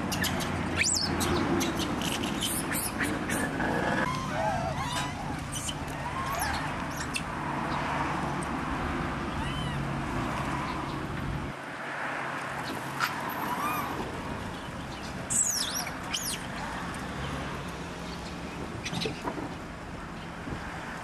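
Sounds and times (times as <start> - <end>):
low traffic rumble: 0.0 - 21.0
macaques cooing: 1.6 - 7.3.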